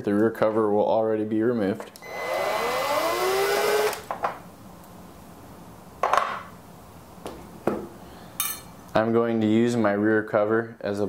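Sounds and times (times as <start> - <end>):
cordless drill motor whine: 2.0 - 4.1.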